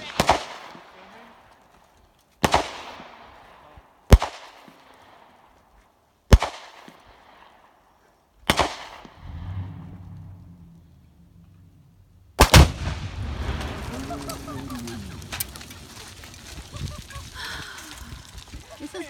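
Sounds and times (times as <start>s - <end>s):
rifle shots echoing: 0.0s - 1.4s, 2.4s - 5.5s, 6.3s - 7.8s, 8.5s - 10.6s, 12.4s - 16.4s
low rumble: 9.1s - 18.8s.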